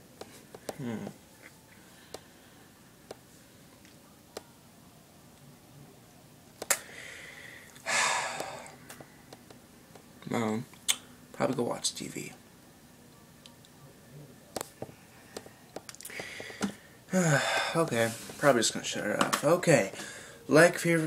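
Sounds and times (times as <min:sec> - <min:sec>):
breath close to microphone: 0:06.8 - 0:08.8, 0:16.1 - 0:17.8
heavy breathy sigh: 0:06.8 - 0:08.8, 0:16.1 - 0:17.9.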